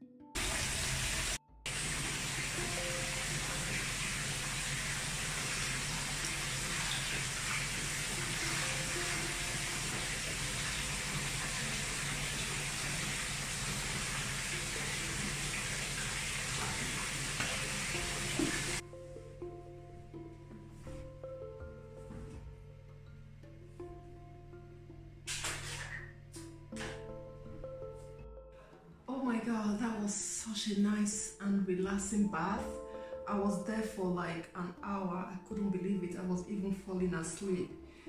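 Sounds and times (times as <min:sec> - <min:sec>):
soft background music: 0:00.0 - 0:38.0
tap running into bathtub: 0:00.4 - 0:18.8, 0:25.3 - 0:26.1.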